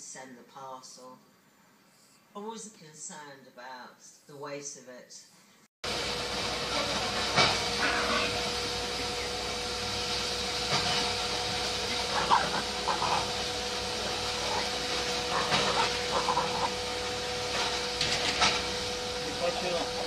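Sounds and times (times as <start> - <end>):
dog panting: 14.0 - 16.8.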